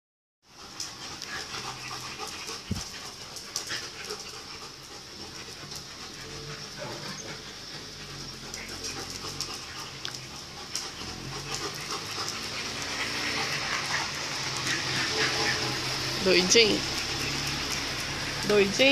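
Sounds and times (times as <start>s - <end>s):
dog panting: 0.5s - 18.9s.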